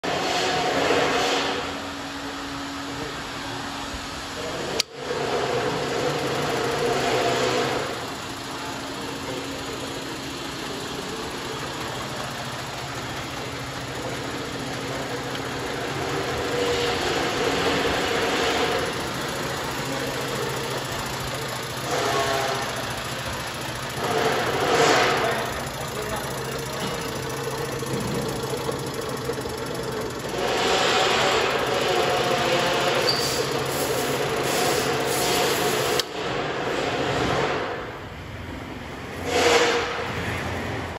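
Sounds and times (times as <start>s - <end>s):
gearmotor hum: 1.9s - 36.2s
conveyor chain belt rattle: 5.2s - 36.0s.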